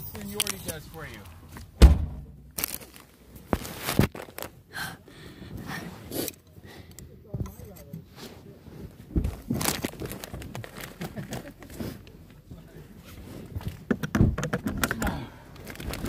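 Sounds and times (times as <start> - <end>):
foil snack bag crinkling: 2.6 - 4.5, 9.5 - 11.4, 15.6 - 16.0
knocks and thumps: 13.7 - 15.0.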